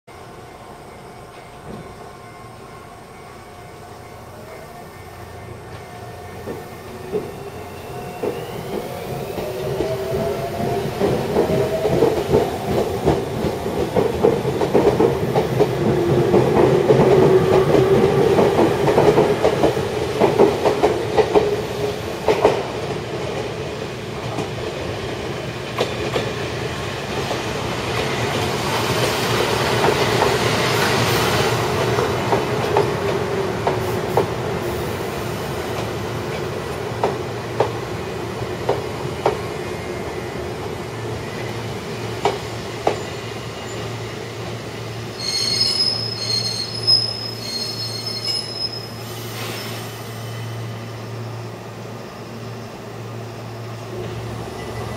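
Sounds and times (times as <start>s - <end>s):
hiss: 48.9s - 51.2s.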